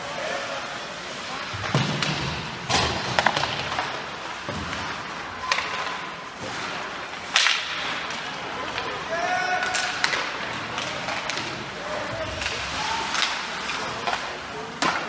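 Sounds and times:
steady rink hiss: 0.0s - 15.0s
puck and sticks knocking: 1.6s - 5.9s, 9.6s - 15.0s.

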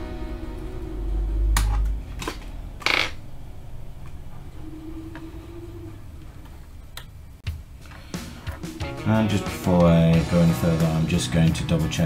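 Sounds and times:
faint hum: 0.0s - 9.2s.

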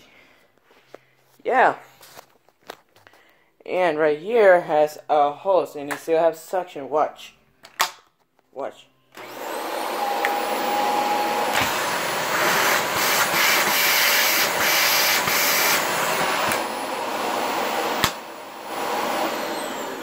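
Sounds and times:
vacuum cleaner running: 9.2s - 20.0s.

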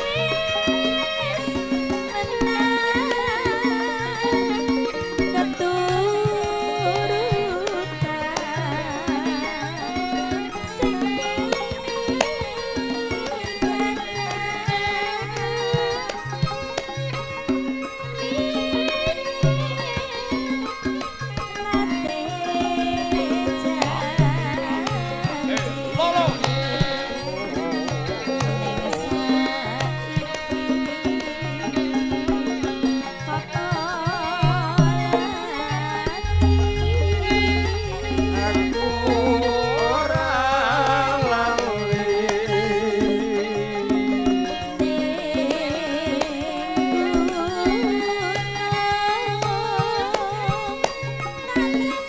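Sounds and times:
gamelan music: 0.0s - 52.0s
hand drum strokes: 0.0s - 52.0s
person singing ornamented vocal: 34.1s - 47.9s
ringing metallophone tones: 34.8s - 42.6s
low gong notes: 36.2s - 41.8s.

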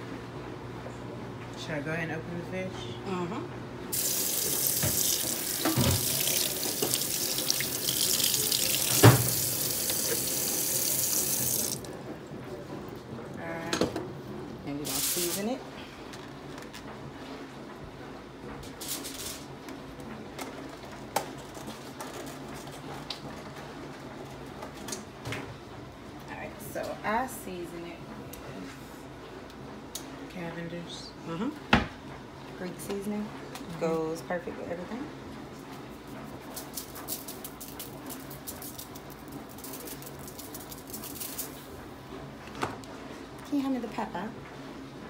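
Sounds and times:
spice shaker rattling: 36.5s - 41.6s.

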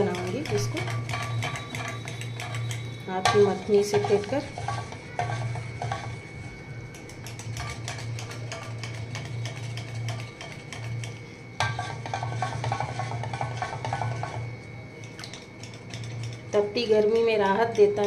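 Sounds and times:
wooden churner clicking in pot: 0.0s - 6.1s, 6.9s - 14.4s, 15.0s - 18.0s.

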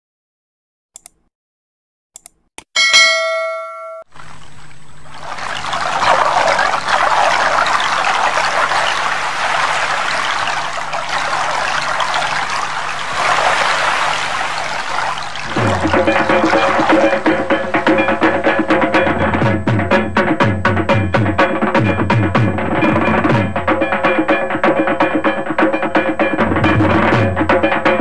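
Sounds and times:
short bell-like chime: 2.8s - 4.1s
flowing water rushing: 4.1s - 19.3s.

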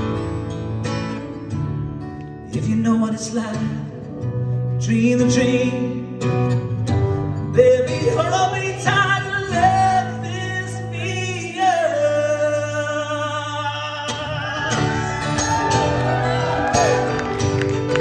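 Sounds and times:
acoustic guitar: 0.0s - 18.0s
man singing: 2.4s - 6.6s, 7.3s - 15.3s.

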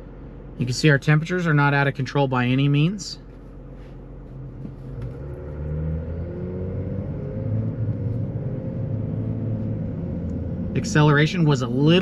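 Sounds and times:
diesel engine revving: 4.1s - 12.0s.

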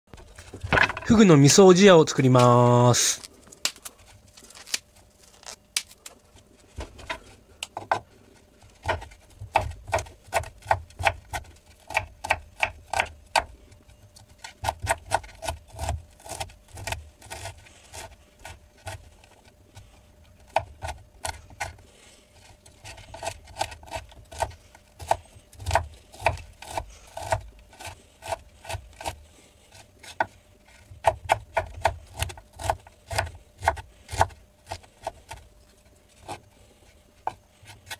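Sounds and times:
knife chopping on wooden board: 8.8s - 13.5s, 14.4s - 17.5s, 23.1s - 29.2s, 31.0s - 35.4s.

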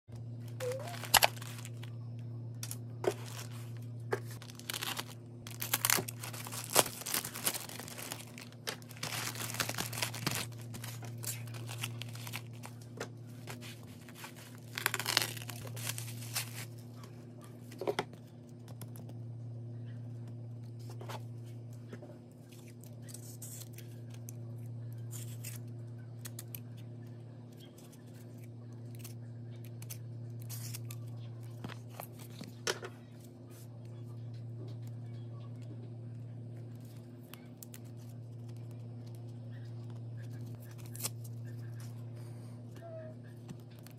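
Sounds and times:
steady low hum: 0.1s - 43.9s
bubble mailer crinkling and tearing: 0.6s - 1.9s, 2.6s - 16.8s.

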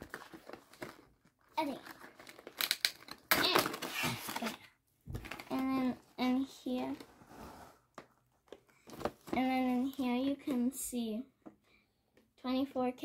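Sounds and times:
packaging rustling and crinkling: 0.0s - 5.6s.

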